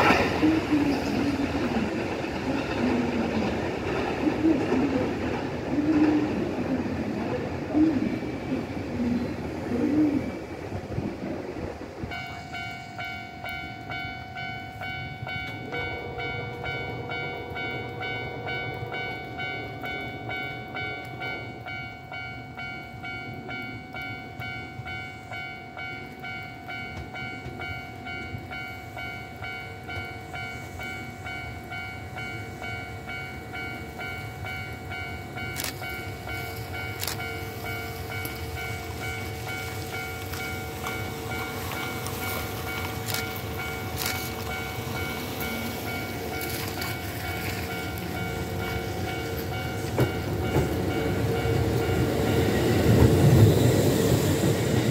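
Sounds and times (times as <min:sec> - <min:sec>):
train rumbling: 0:00.0 - 0:54.9
warning bell clanging: 0:12.0 - 0:53.5.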